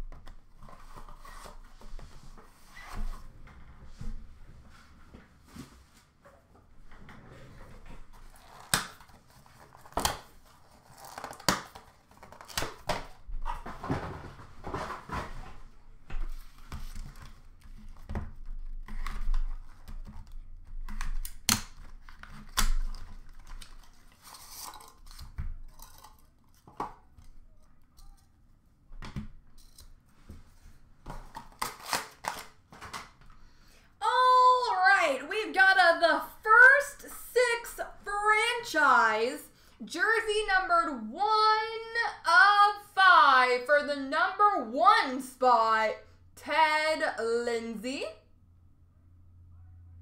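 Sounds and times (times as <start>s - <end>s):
packaging rustling: 8.1s - 12.9s
packaging tearing: 8.3s - 12.9s, 31.4s - 32.6s.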